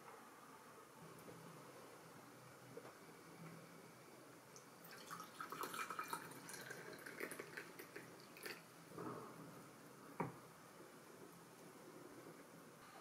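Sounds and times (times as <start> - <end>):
tea pouring into a glass cup: 4.8 - 8.7.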